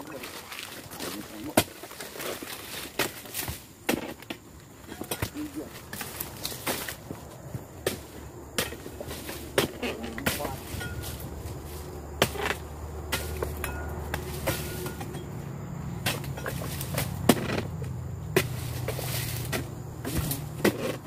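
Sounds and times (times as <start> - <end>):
chisel knocking palm fronds: 7.8 - 11.4, 12.1 - 15.2, 16.0 - 21.0.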